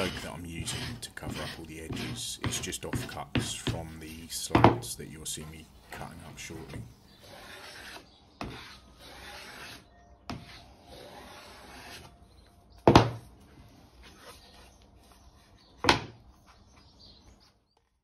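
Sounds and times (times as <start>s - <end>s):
hand rubbing along wooden edge: 0.0s - 4.5s, 5.3s - 9.8s.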